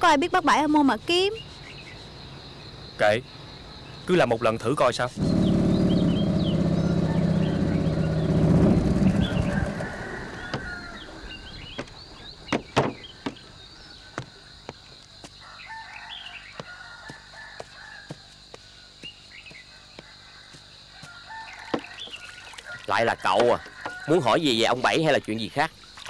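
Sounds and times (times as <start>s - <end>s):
small birds chirping: 0.6s - 16.8s, 18.5s - 26.0s
motor boat engine drone: 5.2s - 13.4s
rooster crowing: 6.2s - 11.8s, 15.4s - 18.2s, 21.0s - 22.0s, 23.5s - 24.4s
sharp knocks: 12.5s - 13.4s.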